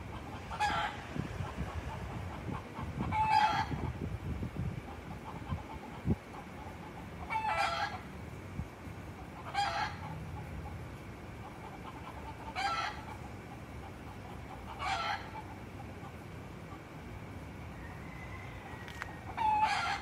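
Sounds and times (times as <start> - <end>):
rooster calls: 17.7 - 20.0.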